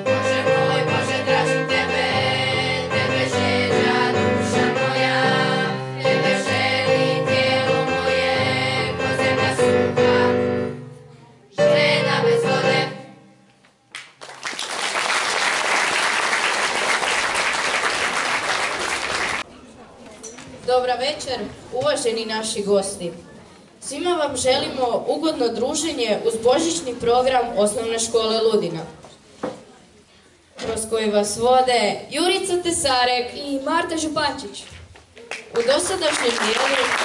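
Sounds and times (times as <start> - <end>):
children's choir singing: 0.0 - 13.3
piano accompaniment: 0.0 - 13.4
audience applauding: 13.9 - 19.4, 35.3 - 37.0.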